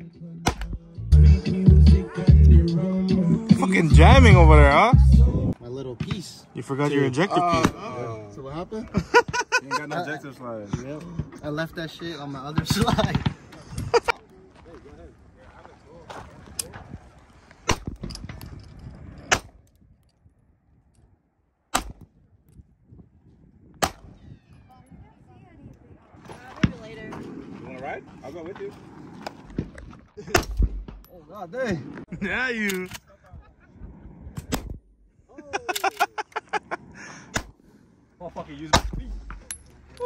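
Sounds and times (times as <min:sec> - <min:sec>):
man's voice: 0:00.0 - 0:05.5
gunshots: 0:23.8 - 0:24.2, 0:30.3 - 0:31.0.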